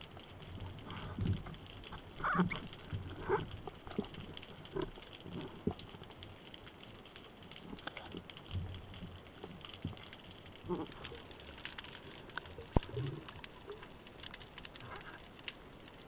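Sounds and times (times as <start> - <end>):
faint steady hiss: 0.0 - 16.0
muffled underwater knocks and scrapes: 0.9 - 5.8, 10.7 - 11.2.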